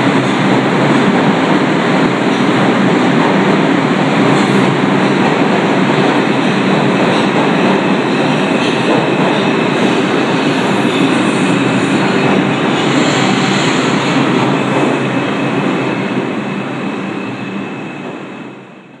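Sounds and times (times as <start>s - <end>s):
subway train rumbling on rails: 0.0s - 19.0s.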